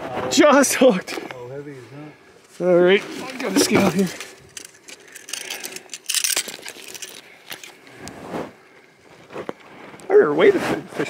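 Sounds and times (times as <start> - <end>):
fish scale clinking and rustling: 3.1 - 7.8.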